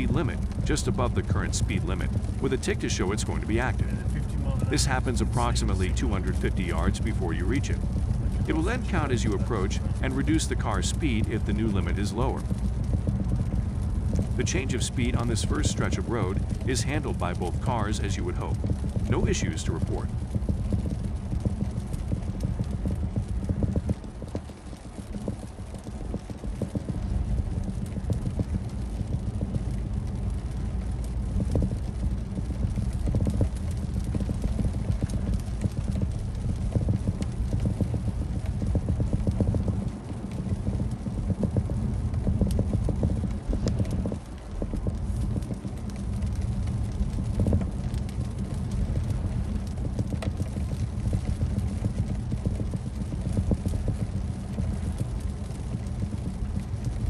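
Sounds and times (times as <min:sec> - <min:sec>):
car road noise rumble: 0:00.0 - 0:57.0
small irregular taps: 0:18.5 - 0:19.4, 0:20.0 - 0:57.0.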